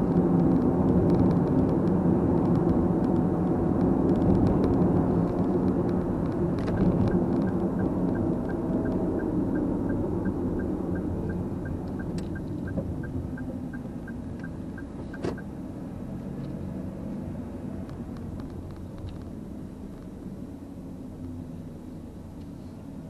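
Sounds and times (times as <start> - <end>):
car engine and road rumble: 0.0 - 23.0
turn signal ticking: 0.5 - 15.5.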